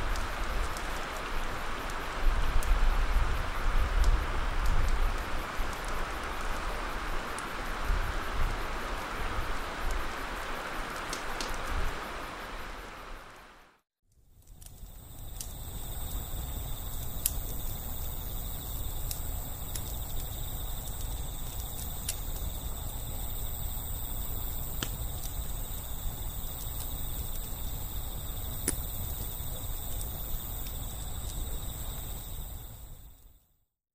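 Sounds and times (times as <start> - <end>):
insects trilling: 14.4 - 33.5
sharp pops: 28.6 - 28.9.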